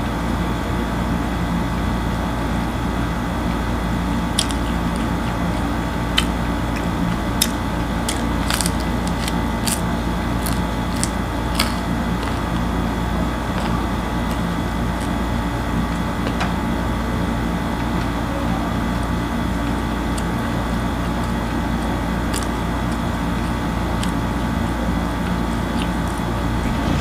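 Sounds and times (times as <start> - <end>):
steady mechanical hum: 0.0 - 27.0
faint eating clicks: 4.2 - 15.2, 19.5 - 26.3.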